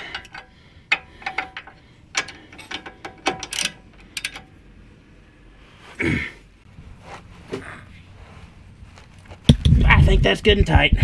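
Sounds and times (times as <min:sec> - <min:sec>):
ratchet wrench clicking: 0:00.0 - 0:04.4.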